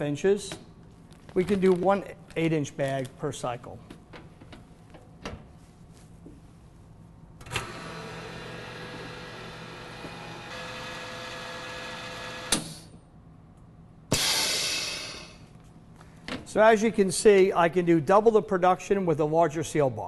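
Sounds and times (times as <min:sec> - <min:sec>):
vacuum pump hum: 0:07.3 - 0:12.7
rush of air: 0:14.1 - 0:15.5.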